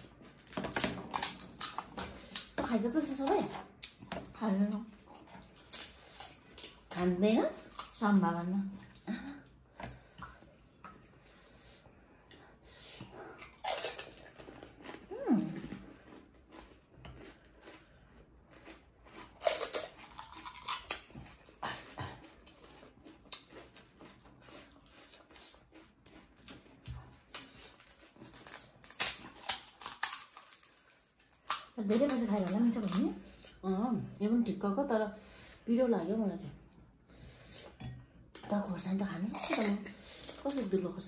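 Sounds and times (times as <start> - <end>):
crunching crisp shells: 0.1 - 2.6, 13.4 - 17.9, 18.5 - 21.1, 22.5 - 33.0, 39.3 - 40.8.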